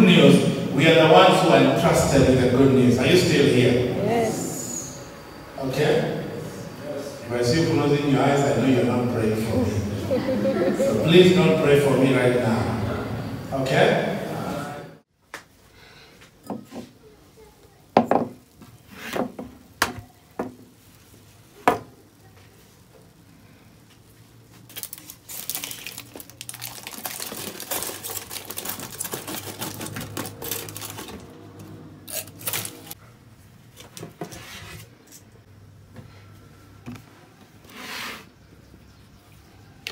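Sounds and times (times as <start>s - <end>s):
glass and tray knocking on counter: 18.0s - 18.4s.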